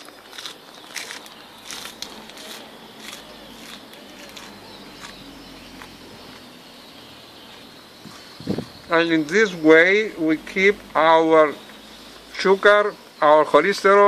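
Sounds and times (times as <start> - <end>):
person chewing crisp leaf: 0.0 - 6.6.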